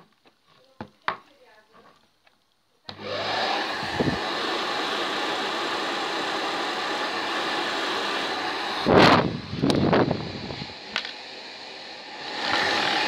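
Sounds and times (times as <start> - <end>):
hair dryer running: 2.9 - 13.0.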